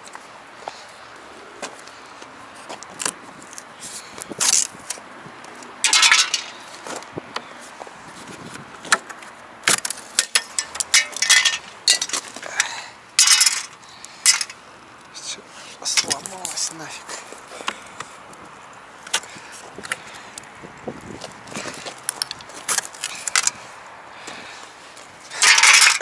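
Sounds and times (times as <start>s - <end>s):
hard objects clinking: 5.8s - 6.6s, 9.7s - 14.6s, 21.5s - 23.6s, 25.3s - 26.0s.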